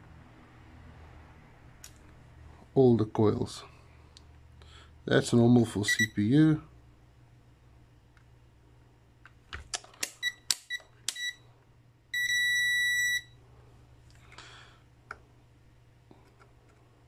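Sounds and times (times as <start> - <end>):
steady high beep: 12.2 - 13.4.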